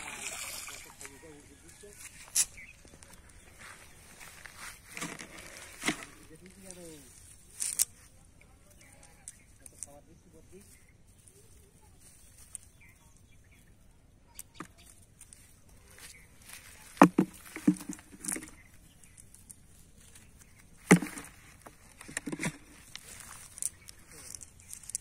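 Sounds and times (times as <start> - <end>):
knocks on plastic bucket: 17.0 - 18.5.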